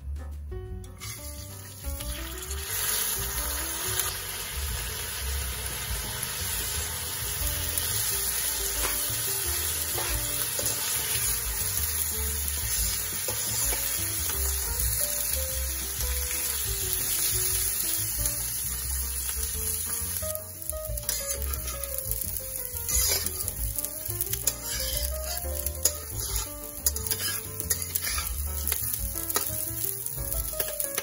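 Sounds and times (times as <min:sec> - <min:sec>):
background music with simple melody: 0:00.0 - 0:31.0
spoon scraping wok: 0:00.9 - 0:01.9, 0:07.8 - 0:14.6, 0:20.9 - 0:31.0
rice sizzling in oil: 0:01.0 - 0:31.0.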